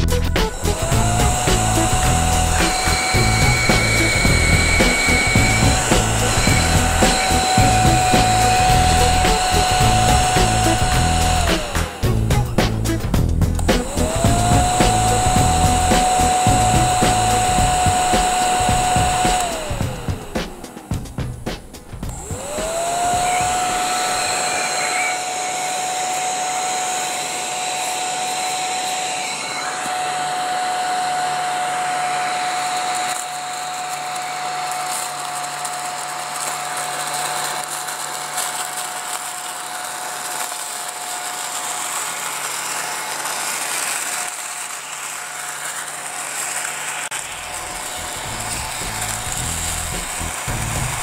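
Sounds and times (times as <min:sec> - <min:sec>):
small vacuum whining: 0:00.0 - 0:51.0
paper scraps sucked up: 0:32.6 - 0:51.0.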